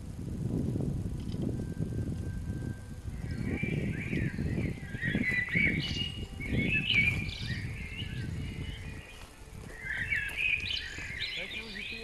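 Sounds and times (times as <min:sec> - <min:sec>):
small birds chirping: 0:03.1 - 0:12.0
boots and poles on stony trail: 0:03.3 - 0:12.0.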